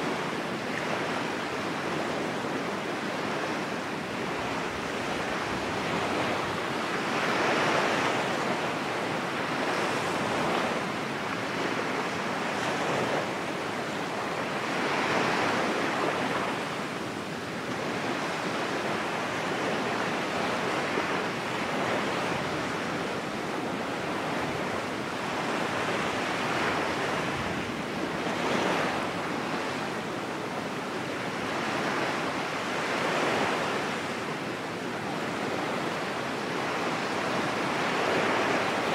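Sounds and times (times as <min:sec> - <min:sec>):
ocean waves washing onto shore: 0:00.0 - 0:38.9.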